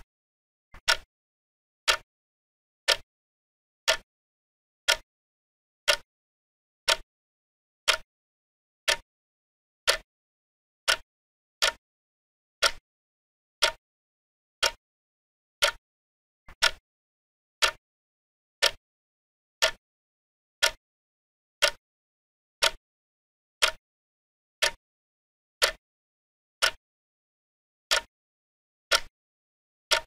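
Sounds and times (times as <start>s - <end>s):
clock ticking: 0.8s - 1.1s, 1.9s - 2.1s, 2.9s - 3.1s, 3.9s - 4.1s, 4.9s - 5.1s, 5.9s - 6.1s, 6.9s - 7.1s, 7.9s - 8.1s, 8.9s - 9.1s, 9.9s - 10.1s, 11.6s - 11.8s, 12.6s - 12.8s, 13.6s - 13.8s, 14.6s - 14.8s, 15.6s - 15.8s, 16.5s - 16.8s, 17.6s - 17.8s, 18.6s - 18.8s, 19.6s - 19.8s, 20.6s - 20.8s, 21.6s - 21.8s, 22.6s - 22.8s, 23.6s - 23.8s, 25.6s - 25.8s, 26.6s - 26.8s, 27.9s - 28.1s, 28.9s - 29.1s.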